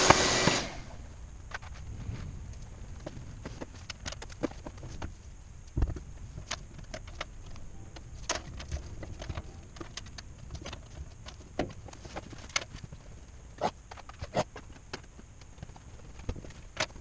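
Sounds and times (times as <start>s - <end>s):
clicks and knocks of parts: 5.7s - 12.9s, 13.8s - 17.0s.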